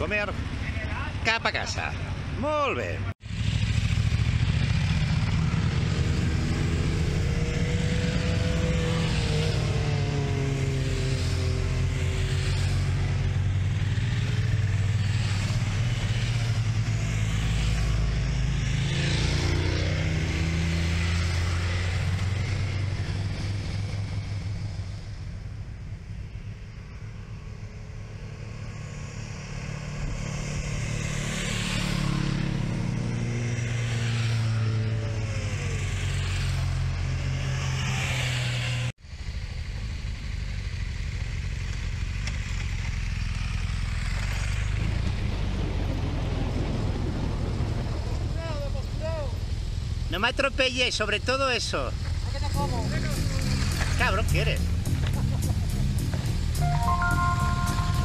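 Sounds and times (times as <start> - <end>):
motorcycle engine running: 3.2 - 34.0, 52.0 - 58.0.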